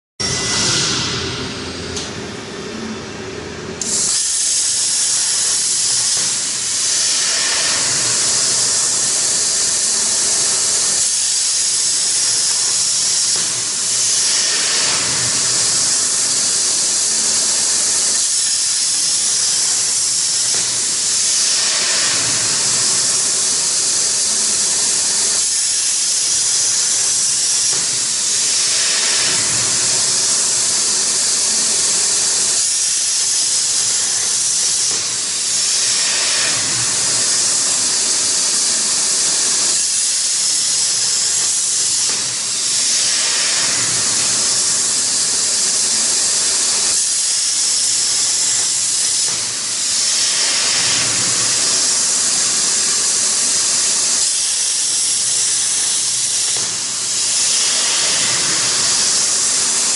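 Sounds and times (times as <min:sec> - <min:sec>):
plasma cutter hissing: 0:00.2 - 0:03.0, 0:03.8 - 0:59.9.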